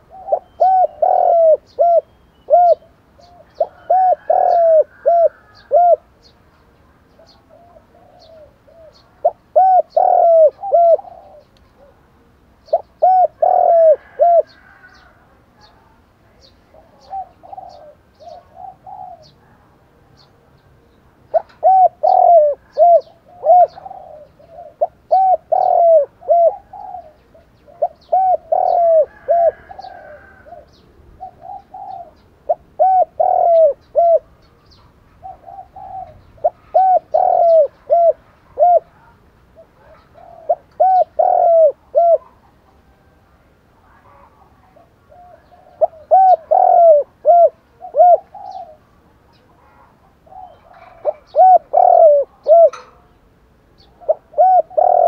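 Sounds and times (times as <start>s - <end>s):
dove cooing: 0.0s - 6.2s, 7.1s - 15.8s, 16.6s - 43.3s, 43.9s - 53.1s, 53.8s - 55.0s.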